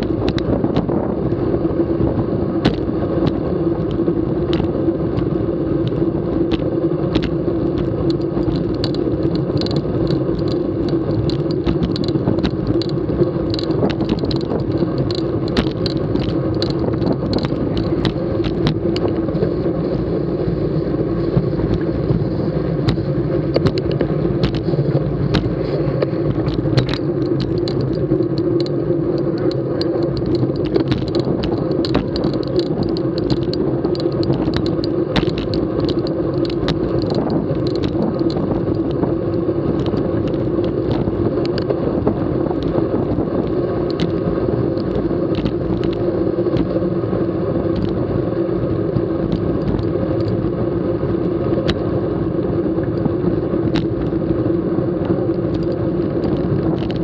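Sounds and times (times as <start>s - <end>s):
bicycle clicks and rattles: 0.0s - 57.0s
bicycle tyres on road: 0.0s - 57.0s
constant hum: 0.0s - 57.0s
wind rushing: 11.6s - 41.2s.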